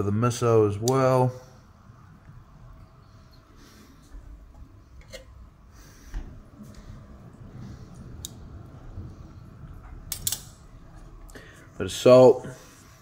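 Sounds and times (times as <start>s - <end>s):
metal tongs clicking: 10.1s - 10.6s.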